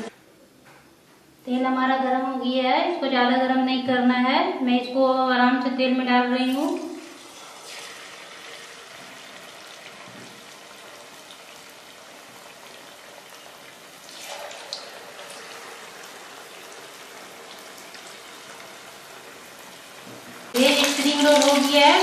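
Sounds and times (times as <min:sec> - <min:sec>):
food deep-frying in oil: 0:06.5 - 0:22.0.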